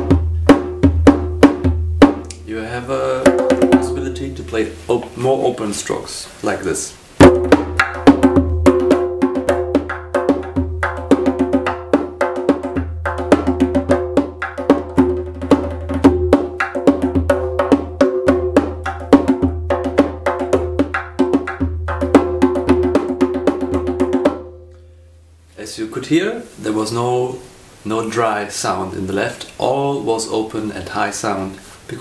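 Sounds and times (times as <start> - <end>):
bass hand drum fast rhythm: 0.0 - 4.4, 7.2 - 24.6.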